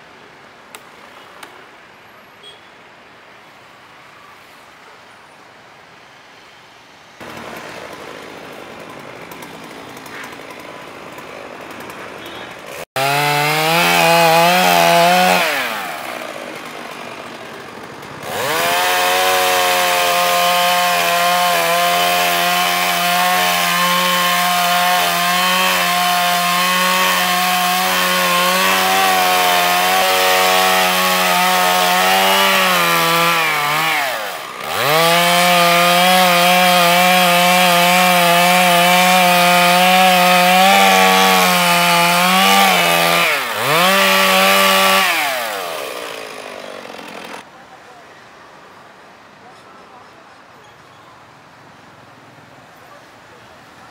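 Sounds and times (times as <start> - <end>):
chainsaw cutting tree: 7.2 - 47.5.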